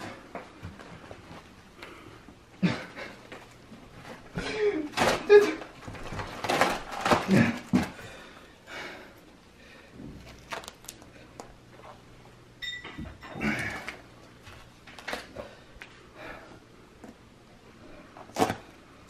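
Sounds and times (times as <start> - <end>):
tape crinkling and rustling: 3.3 - 8.0, 10.2 - 12.0, 13.7 - 16.0.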